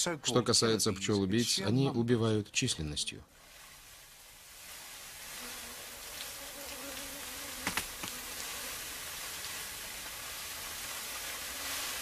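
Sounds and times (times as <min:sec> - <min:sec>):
bee swarm buzzing: 0:05.2 - 0:12.0.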